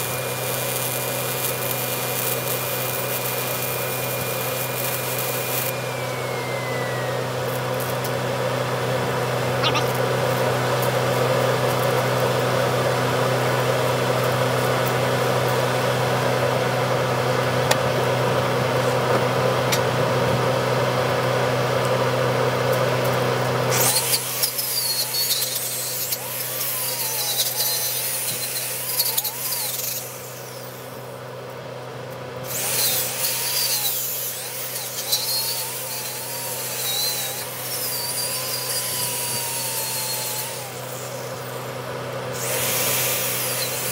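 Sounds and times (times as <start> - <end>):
angle grinder with wire wheel: 0.0 - 8.2, 23.7 - 31.2, 32.4 - 43.9
low machine hum: 4.1 - 43.9.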